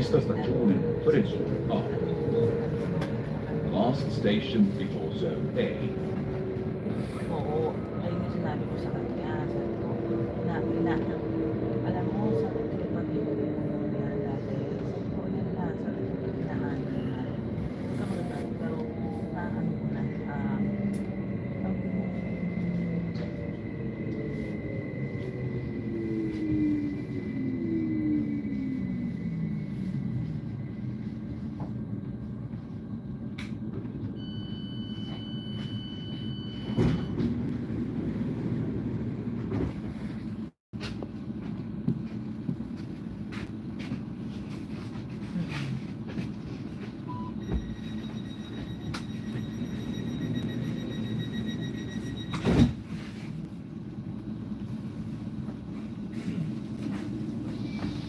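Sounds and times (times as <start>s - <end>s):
train rumbling: 0.0s - 58.0s
train doors shutting: 33.3s - 37.8s, 47.1s - 53.4s.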